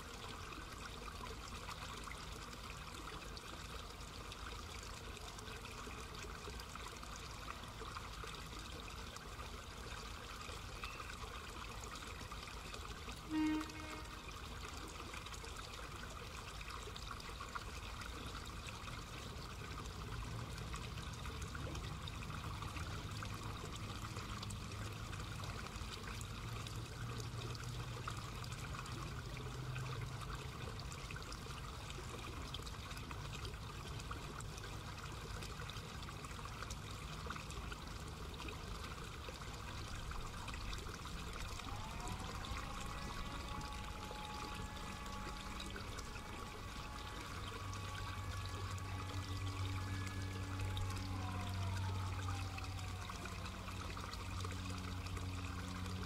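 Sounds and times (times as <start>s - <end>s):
siren winding up: 41.5s - 54.9s
electric train hum: 41.6s - 53.6s.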